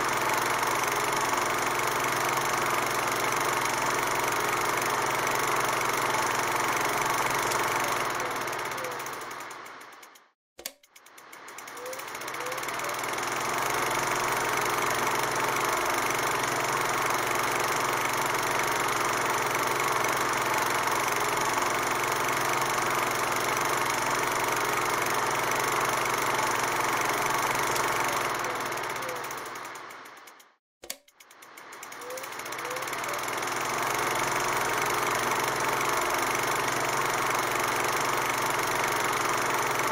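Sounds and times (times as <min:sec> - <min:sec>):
film projector running: 0:00.0 - 0:39.9
click: 0:10.1 - 0:11.1, 0:30.3 - 0:31.4.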